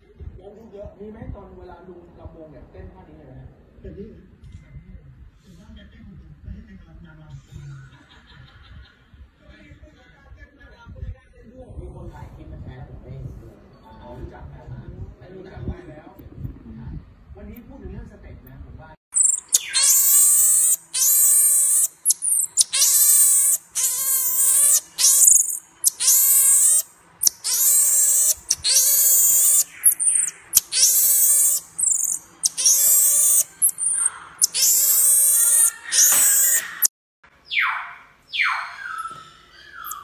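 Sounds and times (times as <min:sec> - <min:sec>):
marmoset warbling cries: 0:19.2 - 0:40.0.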